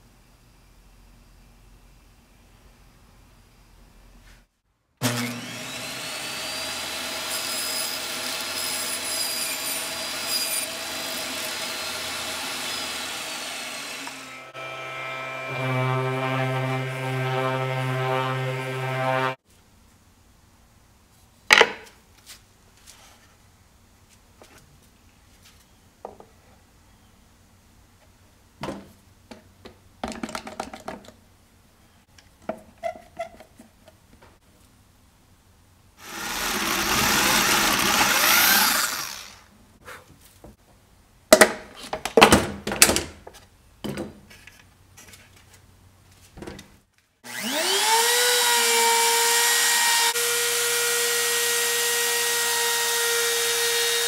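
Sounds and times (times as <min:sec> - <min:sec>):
trim router running: 0:05.0 - 0:07.3, 0:11.5 - 0:17.2, 0:36.0 - 0:39.5, 0:47.3 - 0:54.0
power drill boring through wood: 0:05.0 - 0:19.4, 0:36.0 - 0:39.5, 0:47.2 - 0:54.0.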